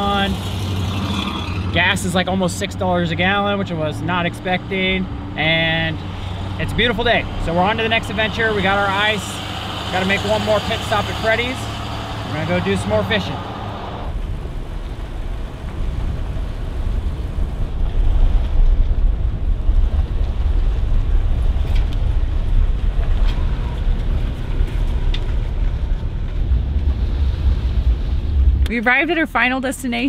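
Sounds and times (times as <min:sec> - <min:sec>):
car cabin road rumble on gravel: 0:00.0 - 0:30.0.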